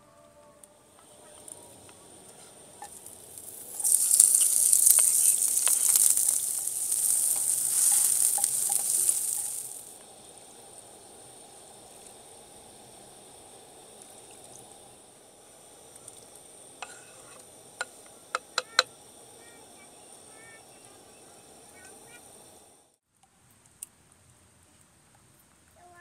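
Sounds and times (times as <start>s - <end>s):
loud sizzling crackling hiss: 0.6s - 23.0s.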